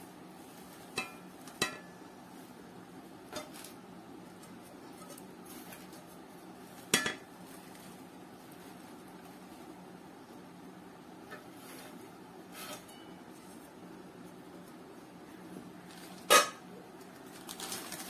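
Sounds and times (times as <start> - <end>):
metal pans clinking: 0.9 - 2.1, 6.8 - 7.3, 16.2 - 16.6.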